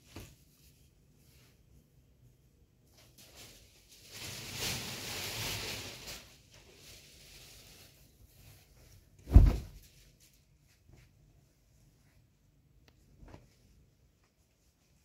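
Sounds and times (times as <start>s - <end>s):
cupboard rustling and sliding: 9.2s - 9.8s
heavy thump: 9.2s - 9.8s.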